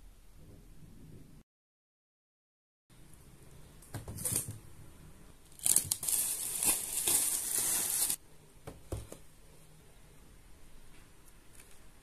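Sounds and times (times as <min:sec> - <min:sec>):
packaging rustling: 0:05.5 - 0:08.2
packaging tearing and crinkling: 0:05.5 - 0:08.2.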